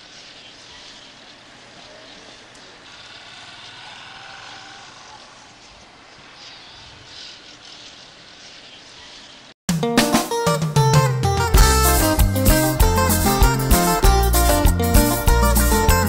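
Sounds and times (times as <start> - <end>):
hiss: 0.0 - 4.1, 5.0 - 9.6.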